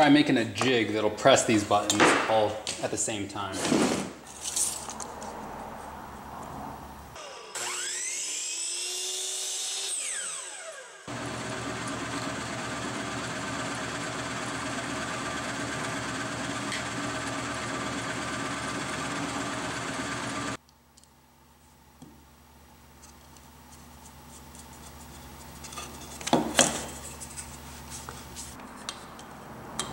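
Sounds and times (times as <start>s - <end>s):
miter saw winding down: 7.2s - 20.6s
drill press drilling wood: 11.1s - 20.6s.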